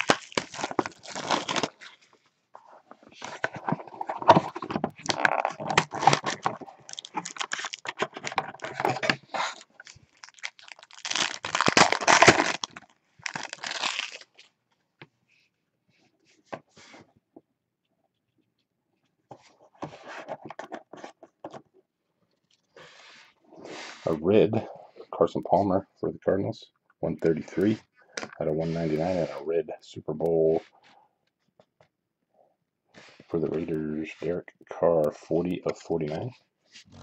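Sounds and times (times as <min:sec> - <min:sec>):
cellophane wrapper ripping: 0:00.0 - 0:02.1, 0:03.9 - 0:14.5
cards rustling: 0:00.0 - 0:02.2, 0:02.8 - 0:14.5.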